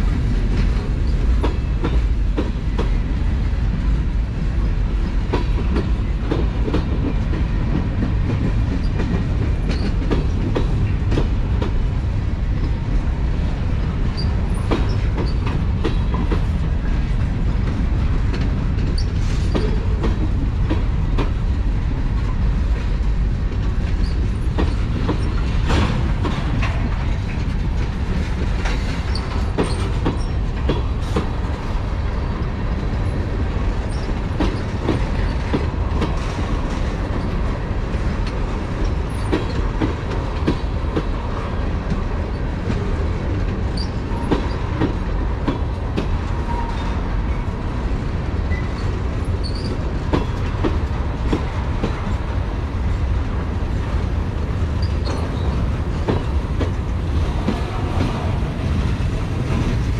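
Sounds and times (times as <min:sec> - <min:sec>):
freight train rumbling past: 0:00.0 - 0:59.9
wheels clanking over rail joints: 0:22.0 - 0:47.6, 0:48.3 - 0:52.3
high wheel squeals: 0:49.4 - 0:49.8.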